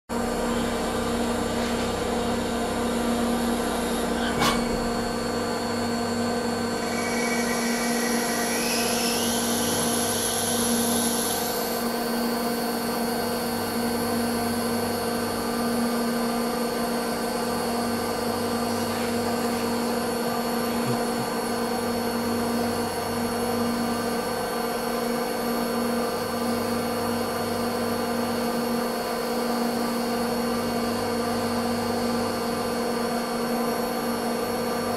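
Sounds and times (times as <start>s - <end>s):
lathe machine hum with whine: 0.1s - 34.9s.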